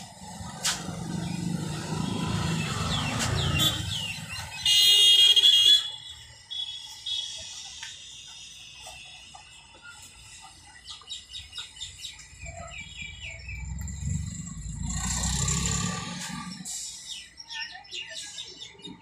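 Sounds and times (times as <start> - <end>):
traffic rumble: 0.0 - 19.0
shrill vehicle horn: 3.5 - 6.1.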